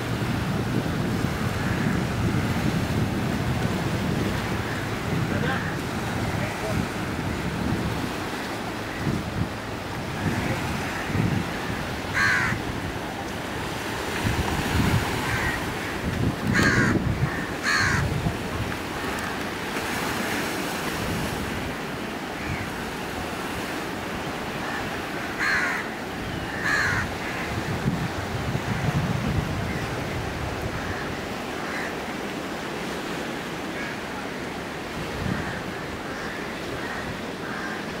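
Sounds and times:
wind buffeting microphone: 0.0s - 31.6s, 34.8s - 38.0s
sea water washing along shore: 0.0s - 38.0s
bird calling: 24.6s - 27.5s.

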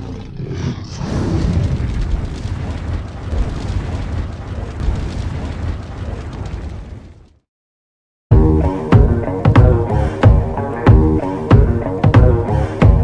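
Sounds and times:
cinematic boom and rumble: 1.0s - 7.4s.

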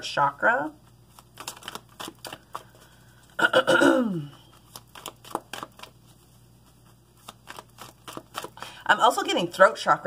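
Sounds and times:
cards clicking and rustling: 1.1s - 2.9s, 4.3s - 6.0s, 7.2s - 8.6s.

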